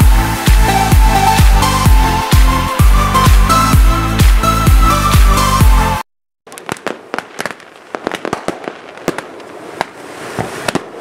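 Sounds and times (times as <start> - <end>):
fireworks bangs and crackles: 6.5 - 11.0.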